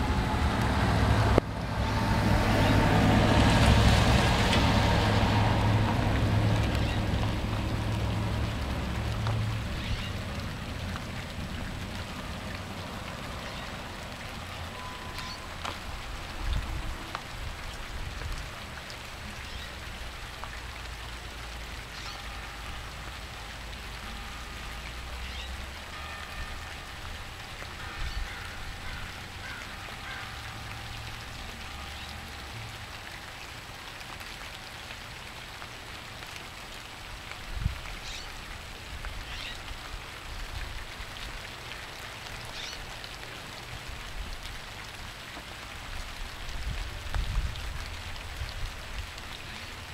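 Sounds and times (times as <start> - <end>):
steady rain falling: 0.0 - 49.9
faint blackbird calls: 9.7 - 10.2, 21.9 - 22.3, 25.2 - 25.6, 38.0 - 38.4, 39.2 - 39.6, 42.5 - 42.9.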